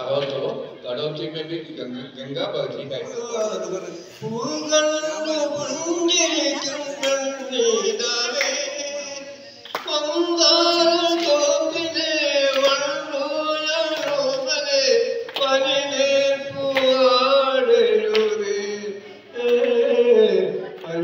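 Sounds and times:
man singing through loudspeaker: 0.0s - 21.0s.

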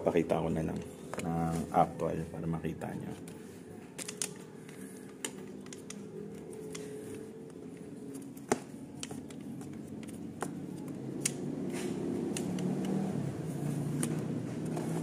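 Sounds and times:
clicks of plastic fasteners: 3.2s - 13.0s.

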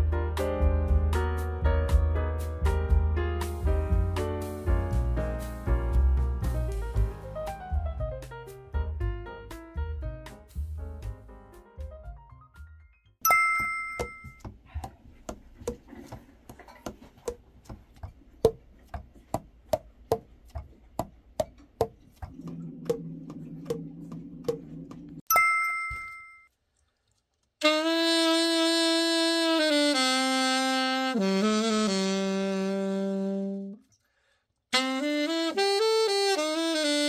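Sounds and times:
chime: 13.3s - 14.4s, 25.3s - 26.5s
saxophone long held notes: 27.6s - 33.8s, 34.7s - 37.0s.

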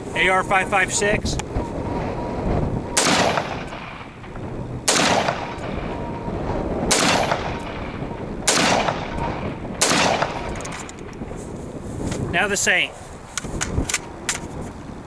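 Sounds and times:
rifle shots: 2.9s - 6.2s, 6.8s - 11.2s.

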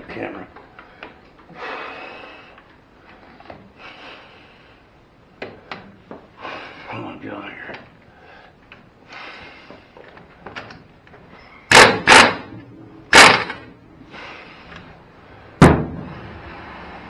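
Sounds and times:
impact wrench hammering: 11.7s - 13.7s.

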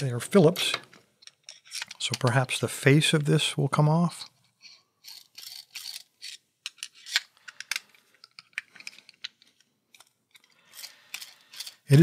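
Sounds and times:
screwdriver scraping and clicking: 0.7s - 2.3s, 4.5s - 12.0s.

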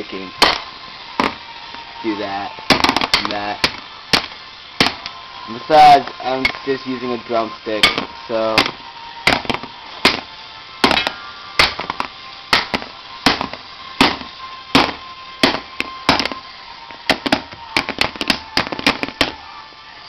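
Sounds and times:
drumstick whacking a phone: 2.7s - 5.1s, 7.8s - 19.4s.

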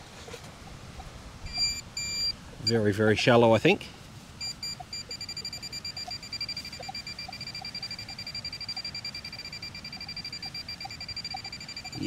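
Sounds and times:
rapid electronic beeping: 1.5s - 2.9s, 4.4s - 12.0s.

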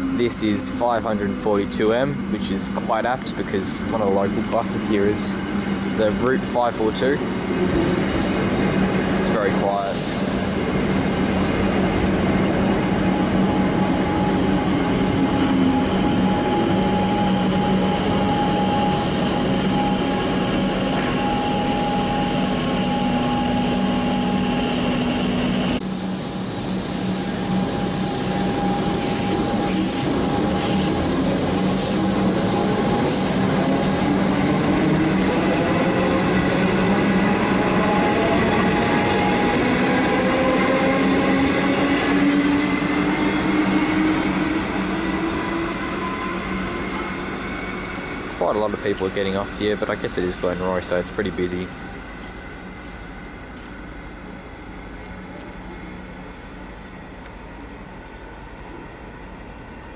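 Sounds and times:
train equipment humming: 0.0s - 59.9s
train motor whine pulling away: 3.7s - 50.1s.

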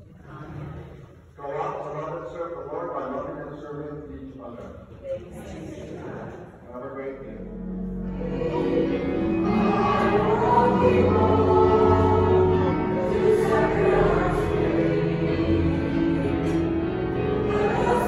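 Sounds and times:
sustained accompaniment: 7.1s - 18.0s
congregation singing a hymn: 7.4s - 18.0s.

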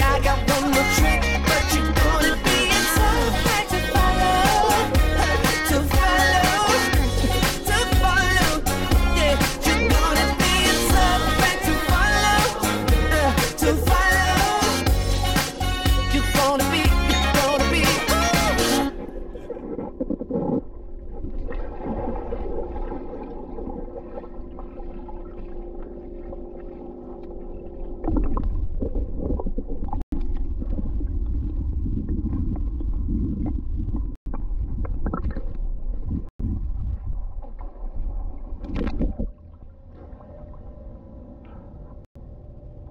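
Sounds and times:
above-water pool sound: 0.0s - 15.6s, 16.2s - 42.0s
steady underwater hum: 0.0s - 16.1s, 16.9s - 42.9s
water gurgling: 18.2s - 40.8s
underwater rumble: 18.9s - 42.9s.

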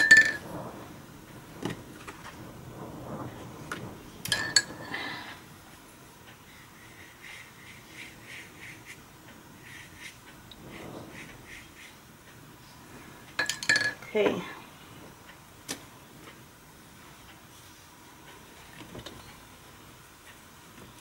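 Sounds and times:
hard object clinking on glass: 0.0s - 0.4s, 4.3s - 4.9s, 13.4s - 14.1s.

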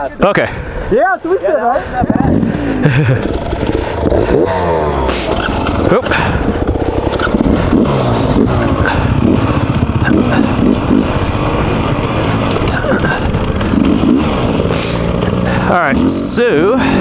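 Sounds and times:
dirt bike engine revving: 2.1s - 17.0s.

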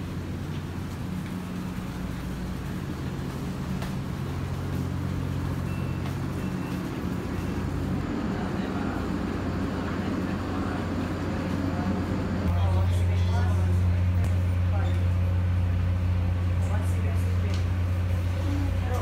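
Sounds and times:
machinery drone: 0.0s - 19.0s
faint high beeps: 5.6s - 7.6s.

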